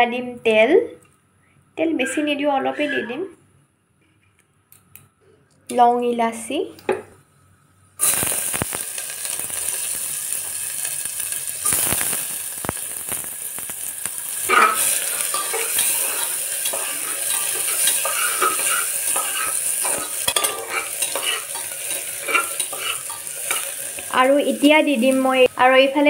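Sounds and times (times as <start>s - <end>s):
onion sizzling in hot oil: 8.0s - 26.0s
spatula scraping a pot: 14.4s - 24.0s.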